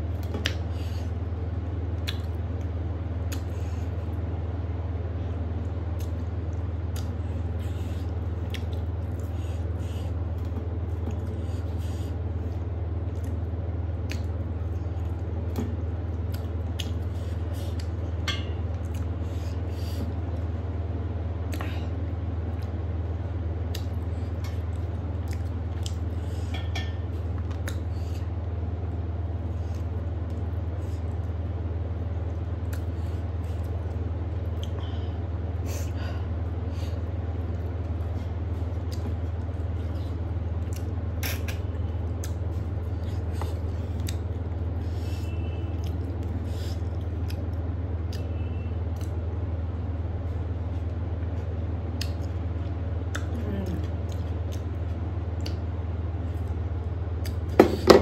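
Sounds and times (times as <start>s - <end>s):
steady low hum: 0.0s - 58.0s
chewing: 1.9s - 2.7s, 5.6s - 20.5s, 23.6s - 28.3s, 36.9s - 45.1s, 45.7s - 49.2s, 50.7s - 55.6s.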